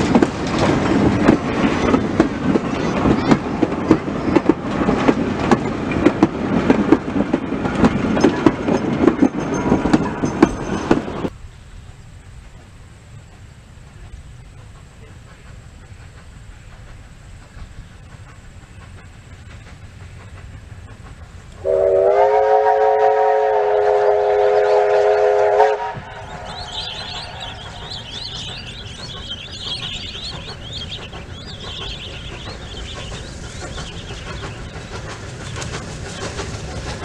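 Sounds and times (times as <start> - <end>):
steam train rumbling: 0.0 - 37.0
steam locomotive whistle: 21.6 - 28.3.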